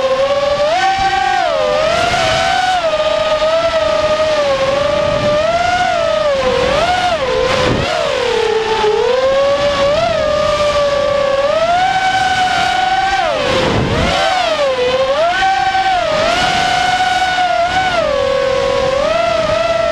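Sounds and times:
drone motors whining: 0.0 - 19.9
wind rushing: 12.2 - 17.2.

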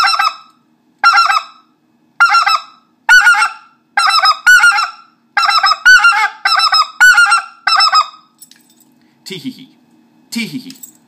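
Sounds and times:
goose call blown: 0.0 - 1.6, 2.2 - 8.2.

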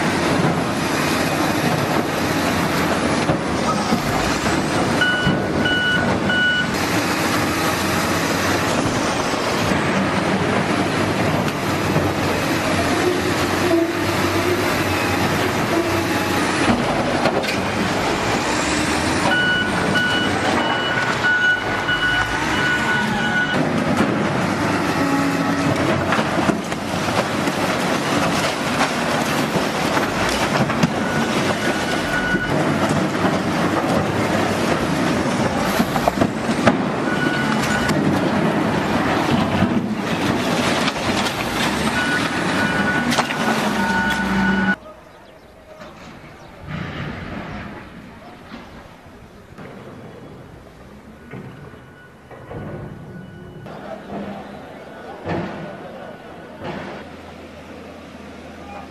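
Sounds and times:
demolition machinery rumbling: 0.0 - 58.9
high warning beep: 43.8 - 44.8.

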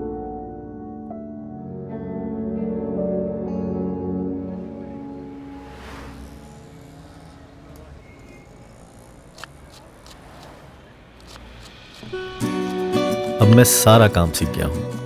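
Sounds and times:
background music: 0.0 - 7.3, 11.1 - 15.0
traffic hum: 4.1 - 14.2
sharp clicks: 9.3 - 10.6, 11.2 - 12.2.

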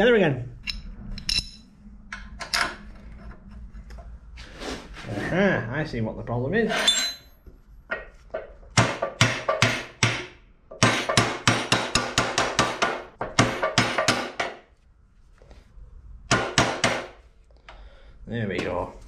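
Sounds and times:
sharp metallic knocks: 8.7 - 14.6.

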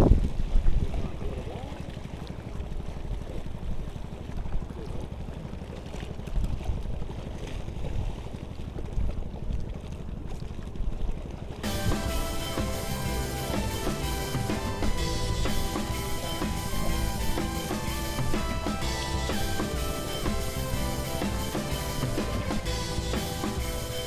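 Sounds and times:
wind buffeting the microphone: 0.0 - 1.6.

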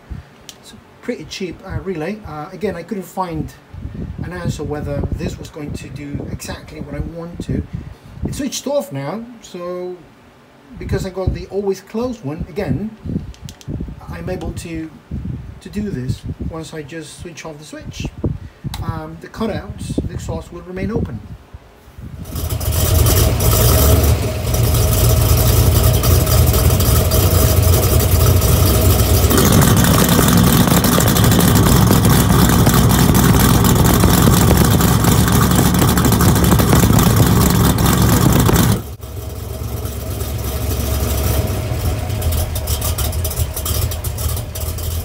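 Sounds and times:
car exhaust note: 22.1 - 45.0.

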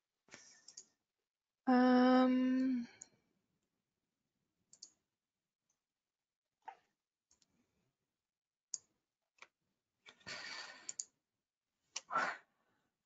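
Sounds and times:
computer mouse clicks: 0.6 - 0.9, 4.7 - 5.0, 10.1 - 11.1.

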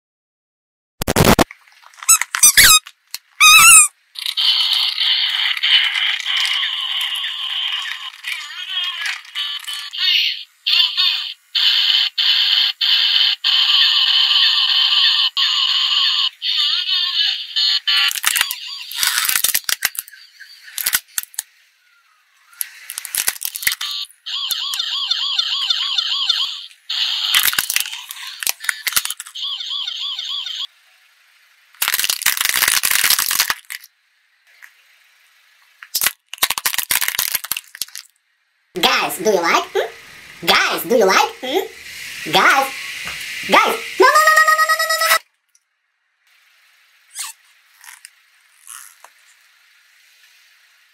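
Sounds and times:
high-pitched electronic toy sound: 1.0 - 1.4, 2.0 - 21.1, 23.6 - 30.7, 38.8 - 45.3, 47.1 - 48.0
rubber toy ball squeaks: 2.0 - 3.9, 47.1 - 49.1
hard plastic cracking: 18.1 - 21.5, 22.6 - 23.9, 27.3 - 29.4, 31.8 - 33.9, 35.8 - 38.1.

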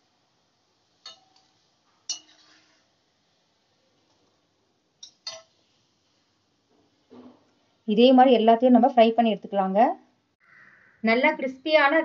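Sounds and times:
metal tongs clinking on a pan: 1.0 - 2.8, 5.0 - 5.5.

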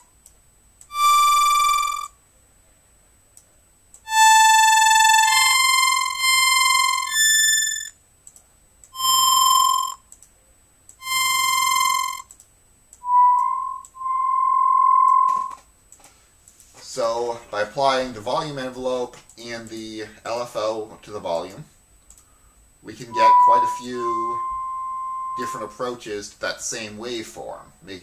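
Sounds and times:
synthesizer held notes: 0.9 - 2.1, 4.1 - 7.9, 9.0 - 10.0, 11.0 - 12.2, 13.0 - 15.6, 23.0 - 25.8
faint mouse clicks: 8.2 - 8.5, 22.0 - 22.3.

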